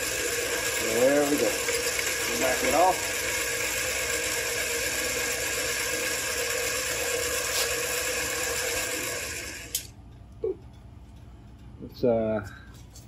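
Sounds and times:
metal lathe whirring: 0.0s - 9.9s.

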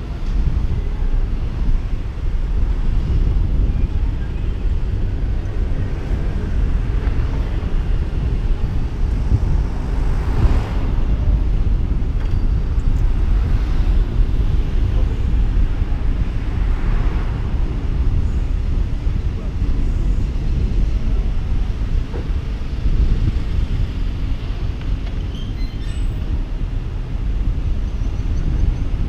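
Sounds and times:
car road noise rumble: 0.0s - 29.0s
wind buffeting microphone: 0.0s - 29.0s
car passing by: 9.8s - 11.2s.

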